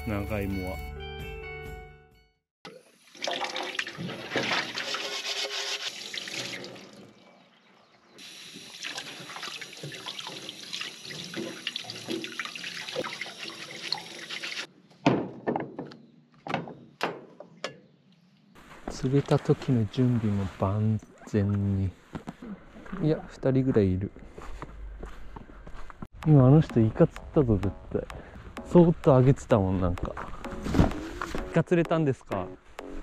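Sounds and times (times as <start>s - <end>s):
tap water running into metal sink: 2.7s - 7.0s, 8.2s - 14.7s.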